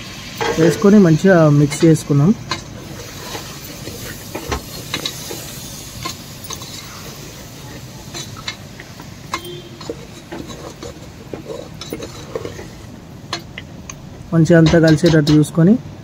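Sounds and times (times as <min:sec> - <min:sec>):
masala sizzling: 0:00.0 - 0:16.0
spoon scraping metal pot: 0:02.5 - 0:13.6.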